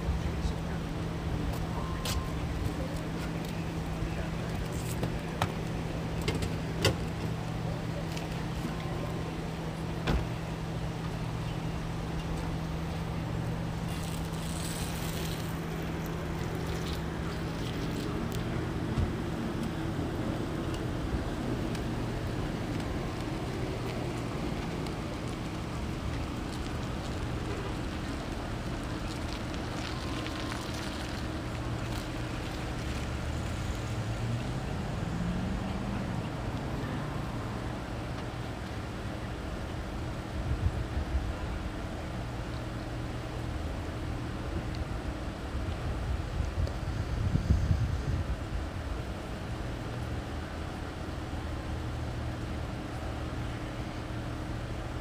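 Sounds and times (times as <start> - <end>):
vehicle engine idling: 0.0 - 55.0.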